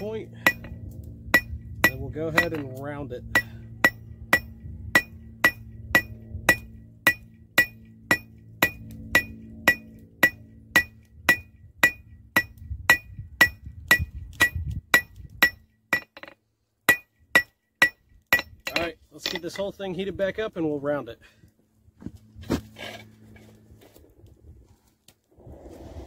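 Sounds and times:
hammer striking metal on anvil: 0:00.0 - 0:19.6.

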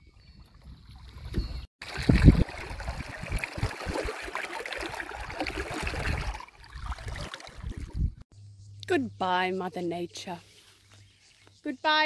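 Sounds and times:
hand splashing through river water: 0:01.8 - 0:08.0.

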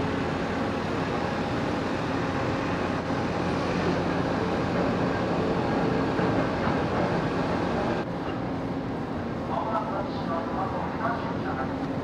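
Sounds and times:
ship engines humming: 0:00.0 - 0:12.0.

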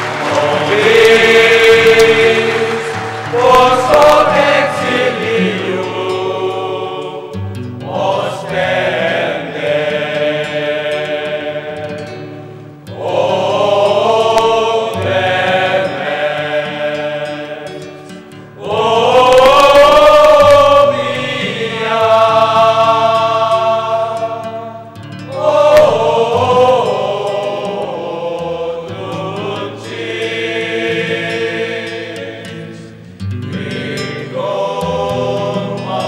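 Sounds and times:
male choir singing: 0:00.0 - 0:36.0.

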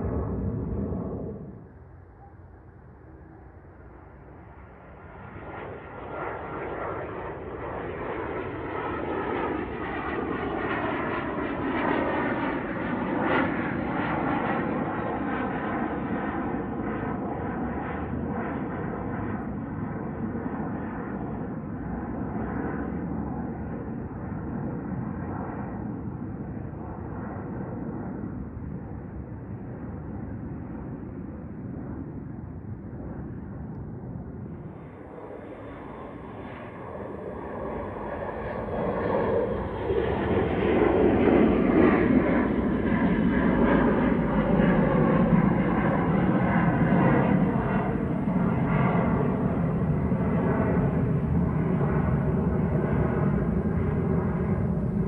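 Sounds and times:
jet engines rumbling and whining: 0:00.0 - 0:55.0.

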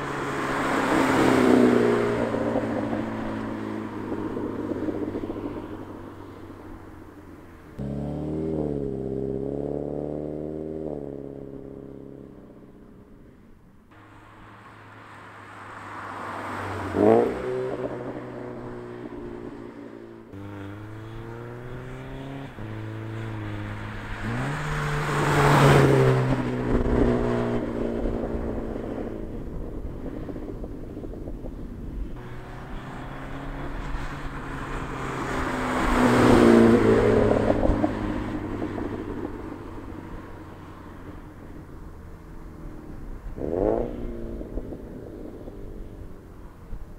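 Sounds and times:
car engine accelerating through gears: 0:07.8 - 0:12.3, 0:15.7 - 0:29.9.

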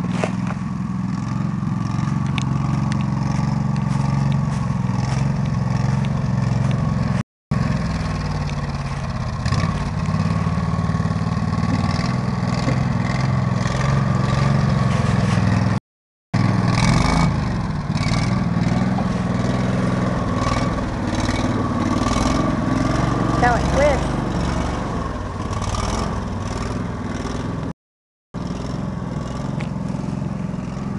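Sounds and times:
atv engine revving: 0:00.0 - 0:15.8, 0:16.4 - 0:27.7, 0:28.4 - 0:30.9.

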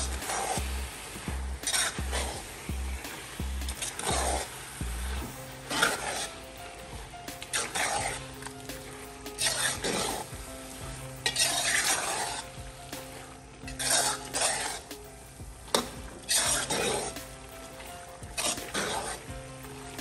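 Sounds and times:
spatula scraping metal pot: 0:00.0 - 0:15.0, 0:15.7 - 0:20.0
greens sizzling in oil: 0:00.0 - 0:20.0.

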